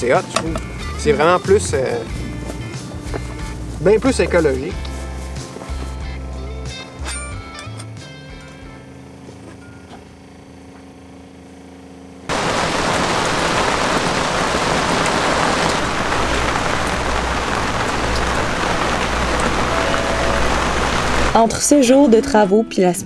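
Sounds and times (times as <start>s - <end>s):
faint background music: 0.0s - 9.5s, 21.3s - 23.0s
rain pouring on deck: 12.3s - 21.4s.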